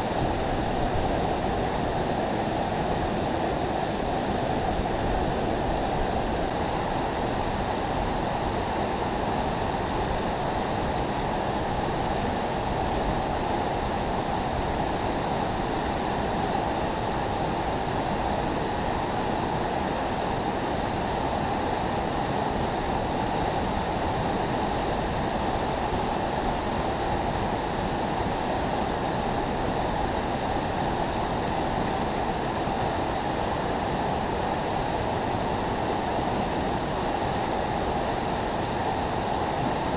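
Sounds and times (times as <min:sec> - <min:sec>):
river water rushing through spillway: 0:00.0 - 0:39.9.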